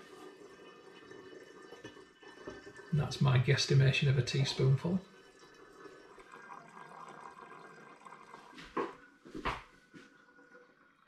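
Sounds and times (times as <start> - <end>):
wine trickling through siphon tube: 0.0 - 11.0.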